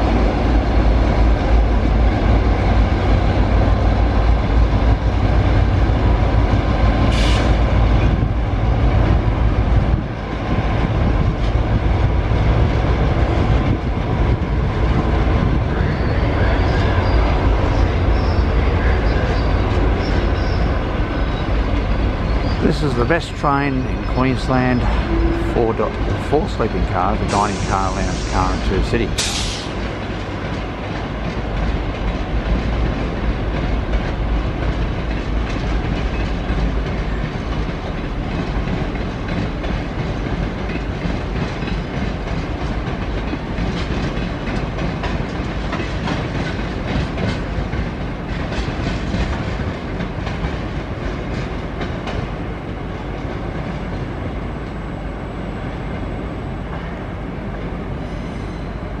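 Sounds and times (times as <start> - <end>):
passenger train rolling past: 0.0 - 59.0
wheels clicking over rail joints: 29.2 - 54.1.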